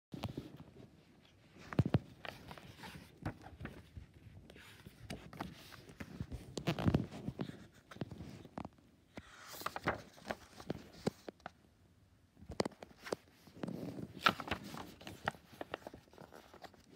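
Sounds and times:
book pages rustling: 0.2s - 11.6s, 12.4s - 16.9s
page swishing: 9.2s - 11.3s, 13.0s - 16.9s.

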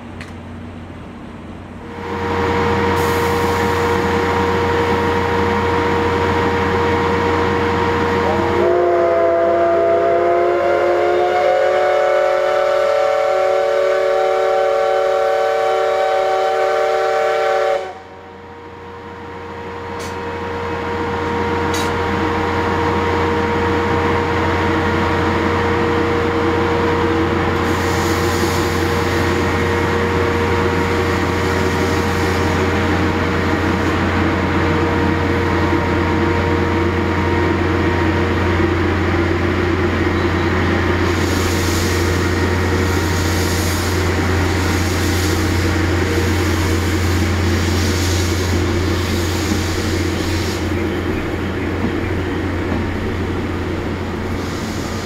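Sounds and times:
steam hissing: 2.0s - 5.8s, 26.8s - 37.3s, 39.1s - 55.0s
steam whistle blast: 8.0s - 18.1s.

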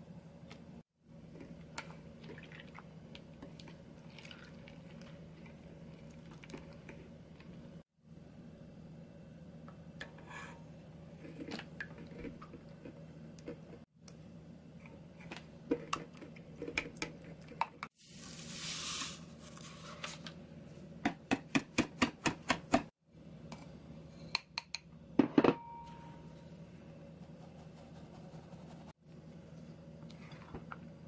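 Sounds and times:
sugar pouring hiss: 18.0s - 19.8s.

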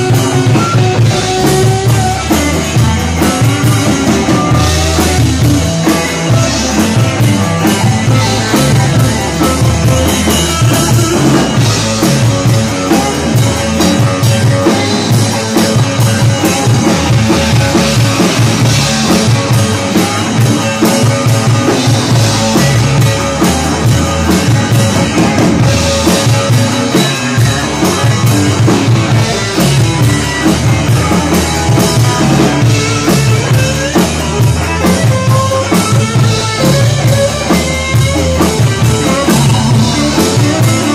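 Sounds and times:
drum kit: 0.0s - 40.9s
electric guitars: 0.0s - 40.9s.

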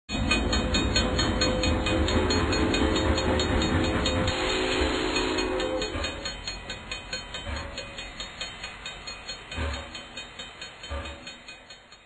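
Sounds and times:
train rumble: 0.1s - 12.0s
wheels clacking over rail joints: 0.1s - 12.0s
train horn chord: 1.4s - 6.3s.

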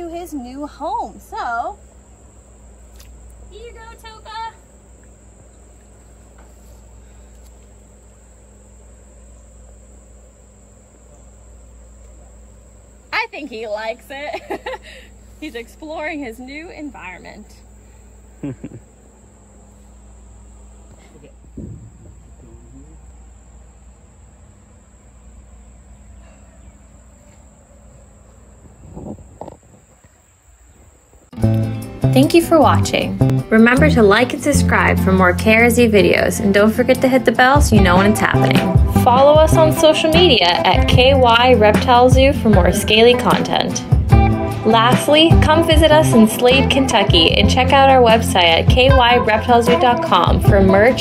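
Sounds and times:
low background rumble: 0.0s - 29.8s
high-pitched insect chorus: 0.0s - 51.0s
low rumble: 21.3s - 25.9s.

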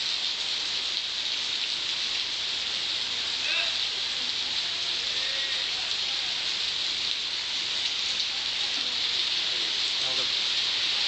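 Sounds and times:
heavy rain on pavement: 0.0s - 11.0s.

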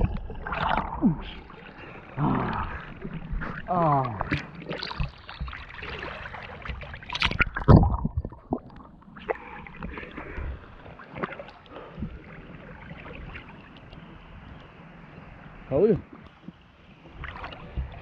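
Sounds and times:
water splashing and sloshing: 0.0s - 18.0s
small water slaps: 3.4s - 10.2s, 17.2s - 18.0s
loud deep splash: 7.1s - 8.6s.

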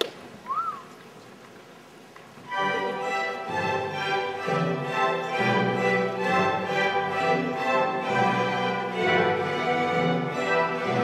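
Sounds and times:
orchestra playing sustained chords: 2.5s - 11.0s.

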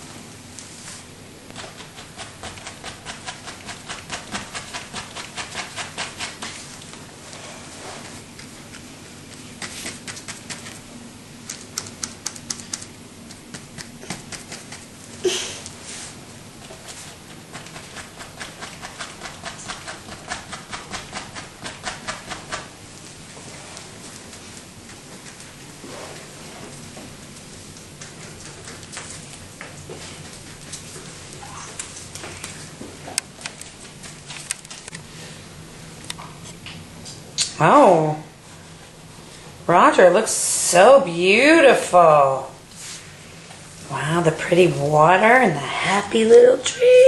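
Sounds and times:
paintbrush strokes on canvas: 0.7s - 2.3s, 5.5s - 8.3s, 23.2s - 27.6s, 42.7s - 43.8s
paintbrush scrubbing on canvas: 0.7s - 8.3s, 15.8s - 26.9s, 42.7s - 43.1s.

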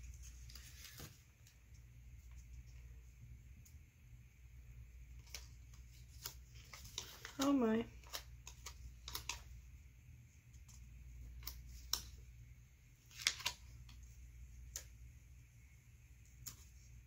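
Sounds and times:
stickers peeled and pressed: 5.2s - 9.5s.

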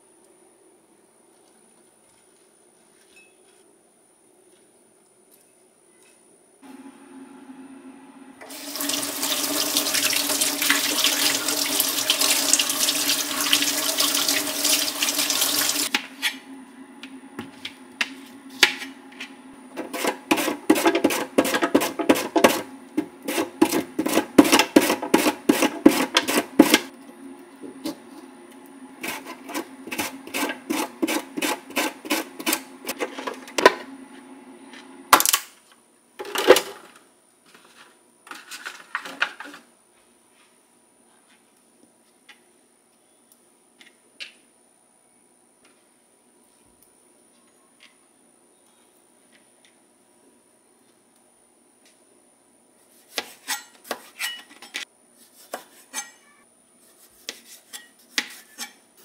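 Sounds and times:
tap running into sink: 8.4s - 15.9s.

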